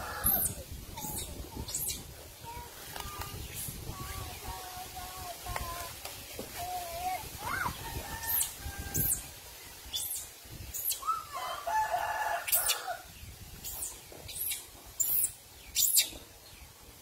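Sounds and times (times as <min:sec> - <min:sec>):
rooster crowing: 0:11.3 - 0:13.0.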